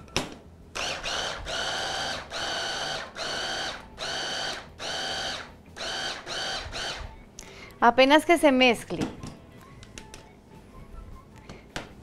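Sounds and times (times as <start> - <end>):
hand blender motor whine: 0.8 - 7.1.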